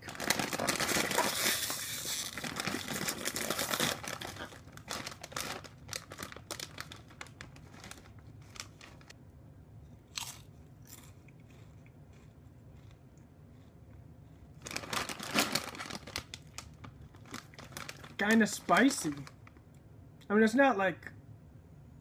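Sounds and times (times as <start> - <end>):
chip bag crinkling: 0.0 - 9.1, 14.6 - 19.6.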